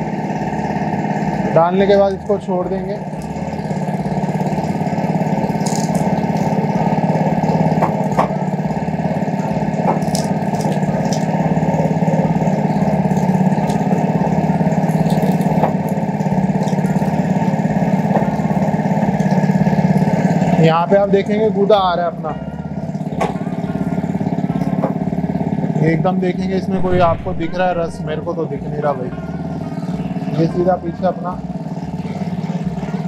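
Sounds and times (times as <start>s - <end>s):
small petrol engine running: 0.0s - 26.0s, 29.4s - 33.0s.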